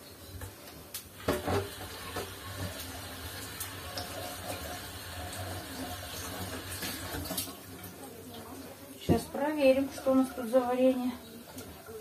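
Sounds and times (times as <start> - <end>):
tap water splashing into sink: 0.4 - 9.4.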